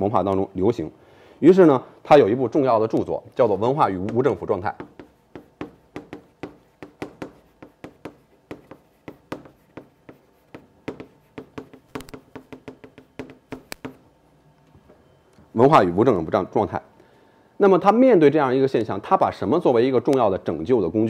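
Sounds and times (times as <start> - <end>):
chalk tapping on blackboard: 3.8 - 14.0.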